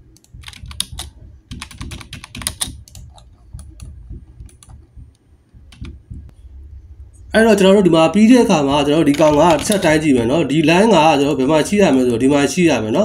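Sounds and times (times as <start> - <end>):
keyboard key clicks: 0.2 - 4.8.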